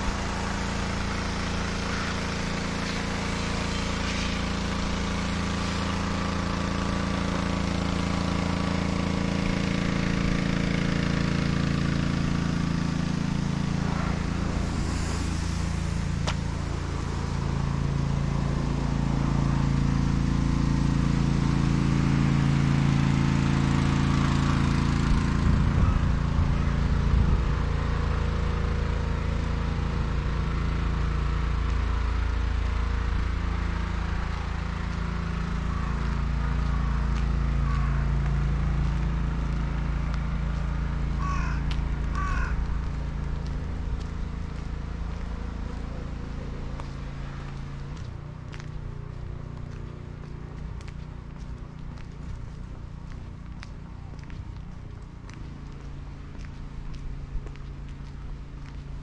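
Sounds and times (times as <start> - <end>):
vehicle engine droning: 0.0 - 59.0.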